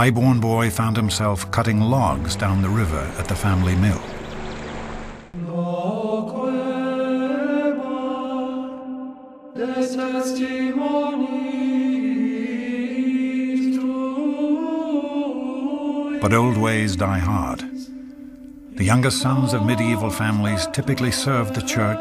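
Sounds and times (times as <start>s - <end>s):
slow sung chant: 5.3s - 22.0s.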